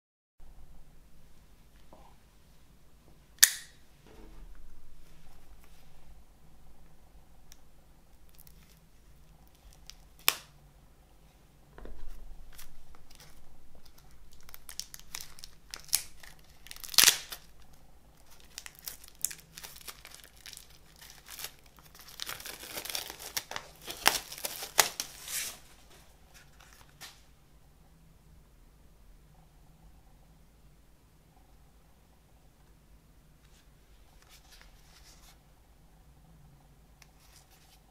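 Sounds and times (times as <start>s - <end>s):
plastic wrap crinkling and tearing: 8.3s - 10.5s, 12.4s - 27.2s.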